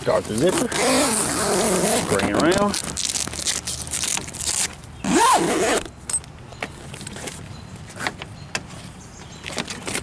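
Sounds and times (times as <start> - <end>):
zipper being pulled: 0.4 - 5.9.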